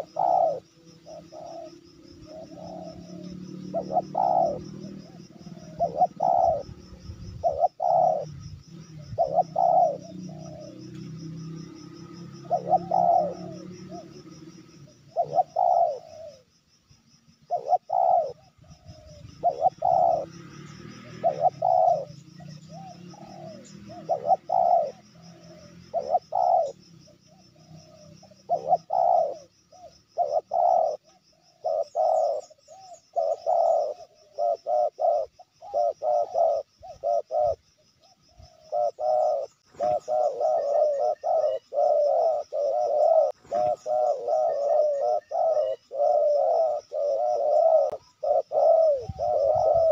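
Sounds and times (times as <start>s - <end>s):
dove cooing: 0.0s - 49.9s.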